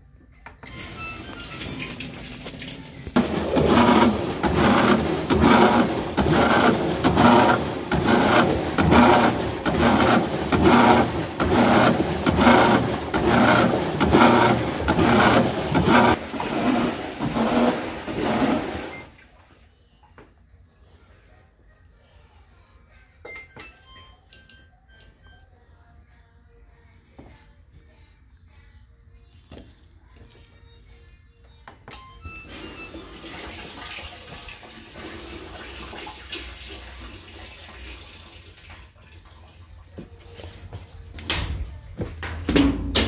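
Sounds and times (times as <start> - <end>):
washing machine rhythmic grinding: 0.6 - 19.7, 32.0 - 43.0.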